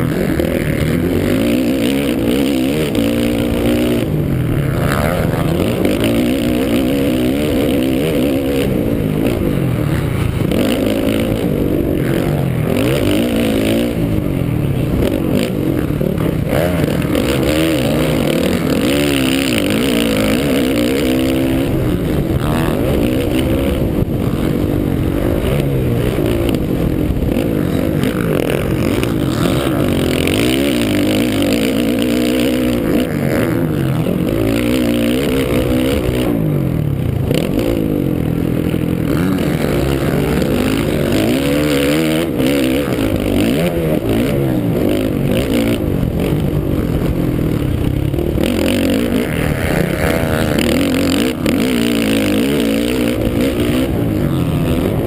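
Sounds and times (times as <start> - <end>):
dirt bike engine revving hard: 0.0 - 55.0.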